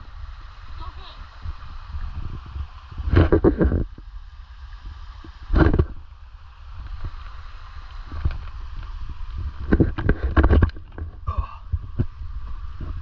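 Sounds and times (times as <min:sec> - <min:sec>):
wind rumble on microphone: 0:00.0 - 0:13.0
microphone handling noise: 0:02.2 - 0:04.0, 0:05.2 - 0:06.0, 0:08.0 - 0:13.0.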